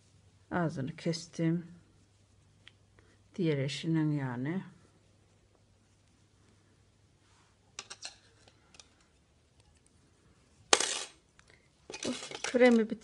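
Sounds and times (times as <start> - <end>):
knitting needles clicking: 11.4 - 13.0.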